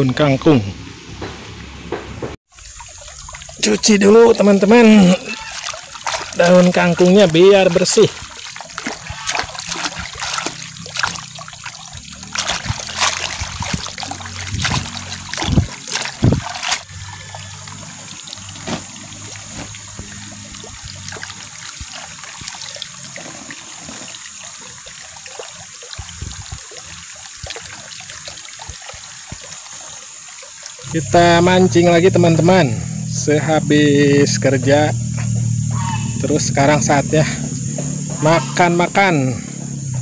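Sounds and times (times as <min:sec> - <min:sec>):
soft trickle of water: 0:02.5 - 0:37.4
hand splashing greens in water: 0:03.2 - 0:23.2.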